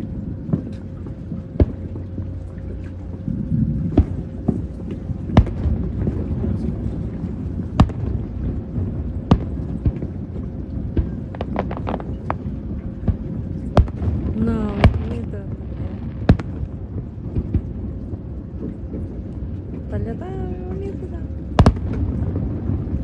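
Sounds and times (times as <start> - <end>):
low rumble: 0.0 - 23.0
small firework pops: 5.4 - 5.7, 7.8 - 8.2, 10.9 - 12.4, 16.2 - 16.6, 21.6 - 22.1
fireworks bangs: 10.9 - 12.5, 13.1 - 17.8, 21.6 - 23.0.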